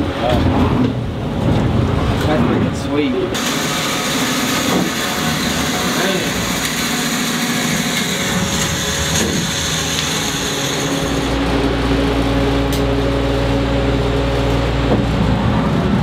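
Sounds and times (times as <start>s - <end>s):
electric hoist motor humming: 3.3s - 16.0s.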